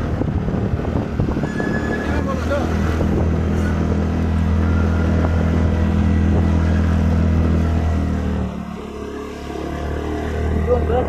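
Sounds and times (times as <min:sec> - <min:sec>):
motorcycle engine running: 0:02.2 - 0:11.0.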